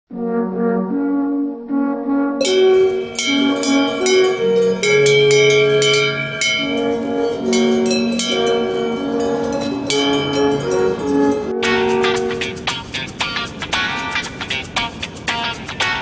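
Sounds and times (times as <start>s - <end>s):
held notes: 0.1s - 16.0s
sharp struck accents: 2.1s - 13.9s.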